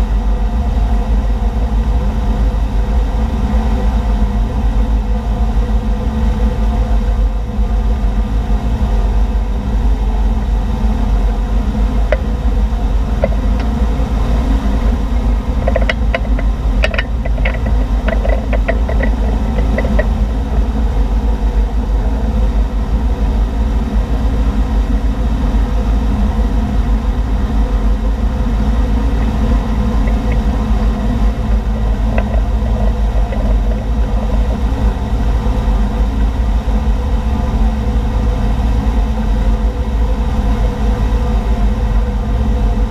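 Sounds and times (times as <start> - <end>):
motorboat engine running: 0.0 - 42.9
wind: 0.0 - 42.9
sharp clicks and taps: 15.6 - 20.2.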